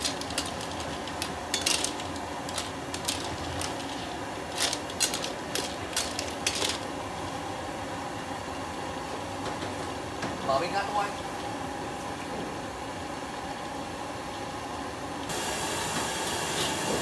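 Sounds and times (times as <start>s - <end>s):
metal skimmer scooping clams: 0.0s - 7.2s
water boiling in a wok: 0.0s - 17.0s.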